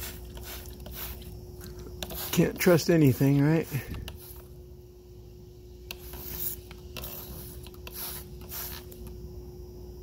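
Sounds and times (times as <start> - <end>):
spray bottle squirting hisses: 0.0 - 1.4, 2.0 - 4.6, 5.9 - 9.1.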